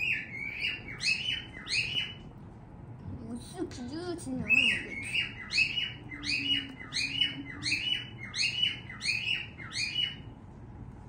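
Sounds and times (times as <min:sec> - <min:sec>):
bird chirping: 0:00.0 - 0:02.2, 0:04.4 - 0:10.4.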